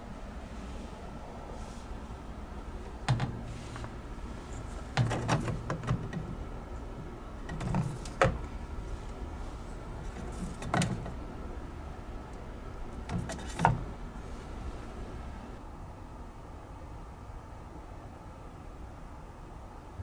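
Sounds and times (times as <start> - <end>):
steady low hum: 0.0 - 20.0
plastic bottles knocking and rattling: 3.0 - 3.4, 4.6 - 6.4, 7.5 - 8.5, 10.0 - 11.2, 13.0 - 13.9.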